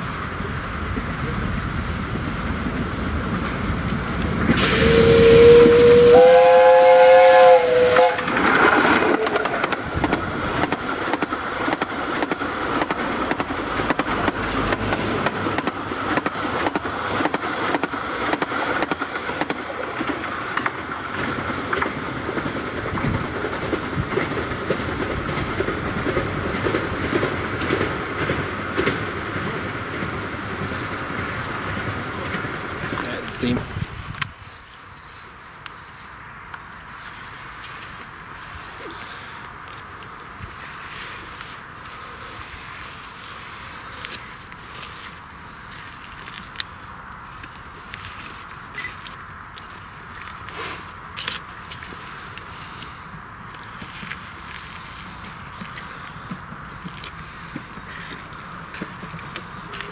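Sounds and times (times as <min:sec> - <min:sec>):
rush of steam: 0:00.0 - 0:59.9
steam locomotive whistle: 0:04.6 - 0:09.4.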